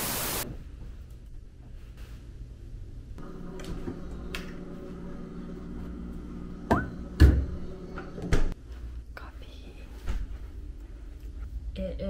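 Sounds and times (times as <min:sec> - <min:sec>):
refrigerator hum: 0:00.6 - 0:09.8.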